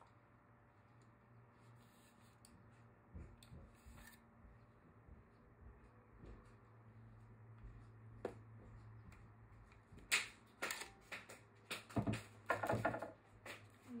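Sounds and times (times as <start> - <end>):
plastic clatter and rustling knocks: 11.7 - 13.2.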